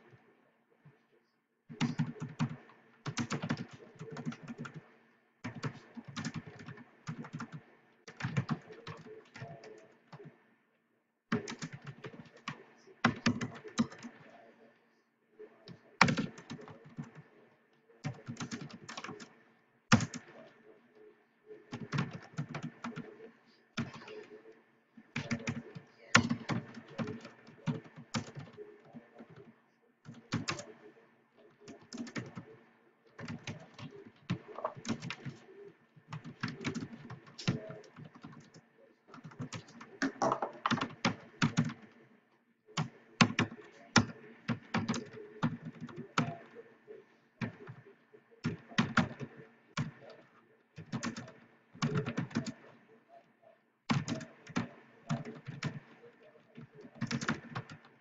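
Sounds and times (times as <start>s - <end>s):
typing on computer keyboard: 1.7s - 10.4s, 11.3s - 14.3s, 16.0s - 17.2s, 18.0s - 19.3s, 19.9s - 20.5s, 21.7s - 23.1s, 23.8s - 24.3s, 25.1s - 30.8s, 31.7s - 32.6s, 33.2s - 35.5s, 36.1s - 41.9s, 42.8s - 46.6s, 48.4s - 52.7s, 53.9s - 56.0s, 56.6s - 57.9s.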